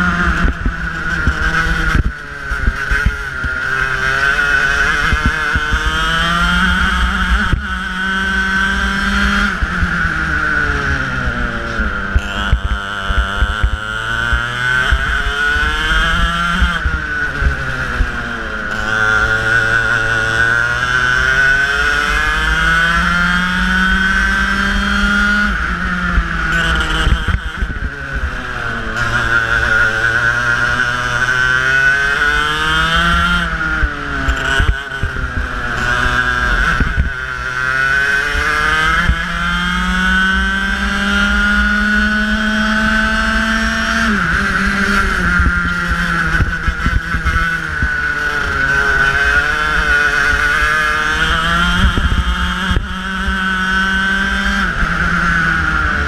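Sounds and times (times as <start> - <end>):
kart engine revving: 0.0 - 56.0
wind rumble on microphone: 32.9 - 37.6, 49.7 - 56.0.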